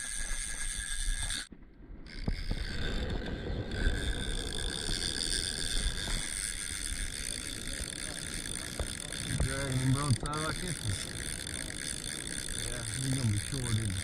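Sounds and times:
wind noise: 0:00.0 - 0:10.2
water noise: 0:00.0 - 0:14.0
boat motor running: 0:02.2 - 0:14.0.

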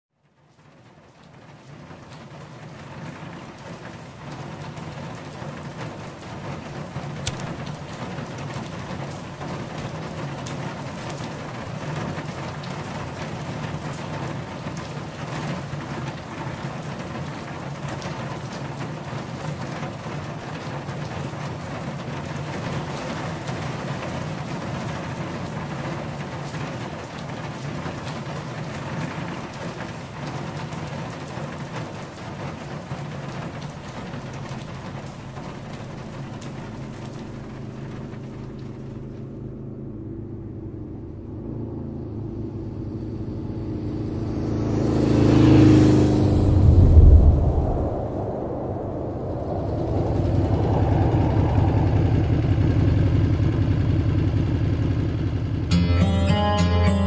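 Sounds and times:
rain falling on a car: 0:00.2 - 0:46.4, 0:47.6 - 0:55.7
sharp click: 0:07.3 - 0:07.8
low steady rumble: 0:33.3 - 0:55.8.

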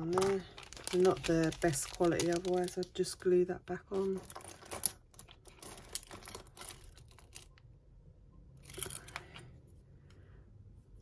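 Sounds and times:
plastic bags and card rustling: 0:00.0 - 0:07.6
beads and metal clicking: 0:04.0 - 0:07.7, 0:08.6 - 0:09.3.

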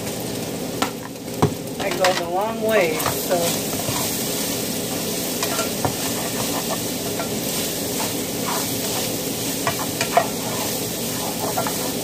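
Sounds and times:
steak sizzling in a skillet: 0:00.0 - 0:12.0
spatula scraping a pan: 0:02.8 - 0:12.0
utensil knocking against pan: 0:09.6 - 0:10.4.

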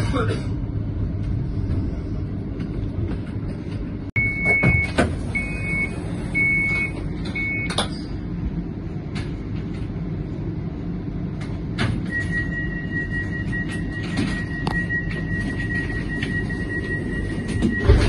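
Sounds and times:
tram interior low hum: 0:00.0 - 0:18.0
door warning beeps: 0:04.2 - 0:07.8, 0:12.0 - 0:18.0
long steady beep: 0:04.2 - 0:07.8, 0:12.1 - 0:18.0.

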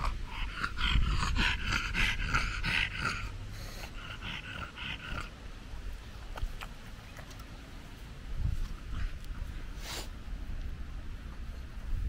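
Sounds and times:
dog panting: 0:00.0 - 0:05.4.

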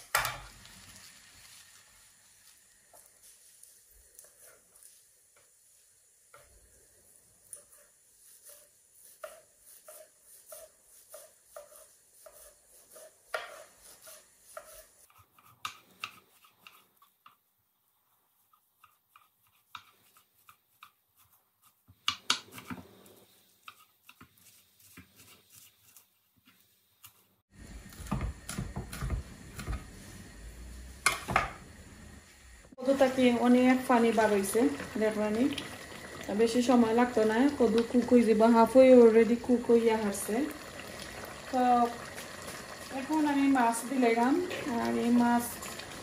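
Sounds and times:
knife chopping on wooden board: 0:08.5 - 0:16.8, 0:27.9 - 0:29.9.

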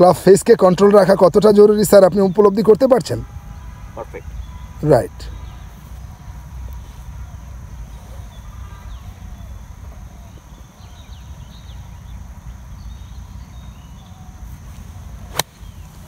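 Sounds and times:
golf iron striking ball: 0:15.3 - 0:15.8.

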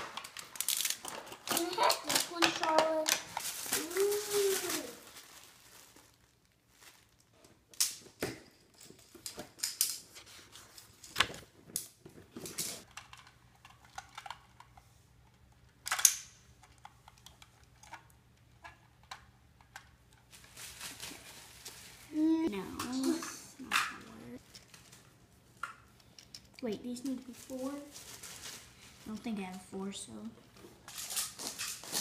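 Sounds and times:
plastic packaging crackling: 0:00.0 - 0:07.4, 0:20.3 - 0:25.6, 0:27.0 - 0:29.6.

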